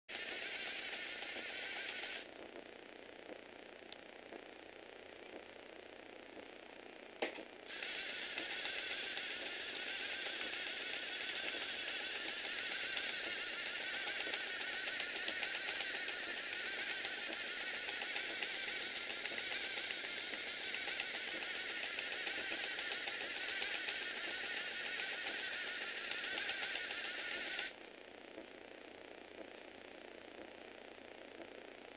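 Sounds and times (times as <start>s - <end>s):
toy motor gear clatter: 0.1s - 2.3s, 7.7s - 27.8s.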